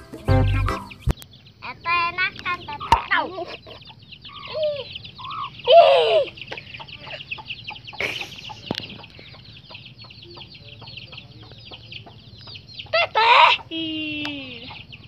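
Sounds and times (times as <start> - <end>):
chickens clucking softly: 2.2 - 15.0
quick high cheeping calls: 2.4 - 10.6
loud chicken call: 2.7 - 8.7, 12.9 - 14.9.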